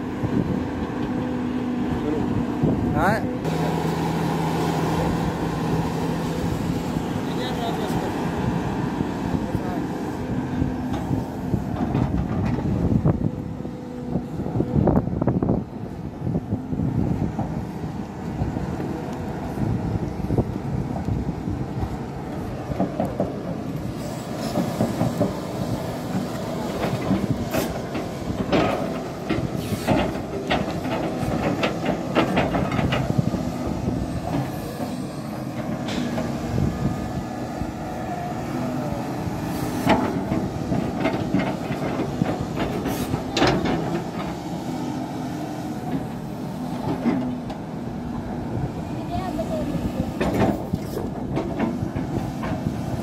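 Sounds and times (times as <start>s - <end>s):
excavator diesel engine: 0.0s - 53.0s
metallic clanks and knocks: 39.8s - 44.3s.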